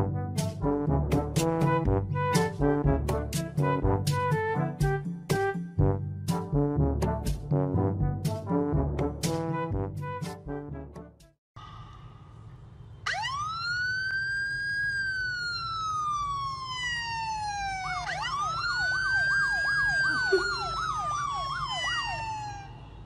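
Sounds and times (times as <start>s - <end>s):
siren through phone speaker: 13.1s - 23.0s.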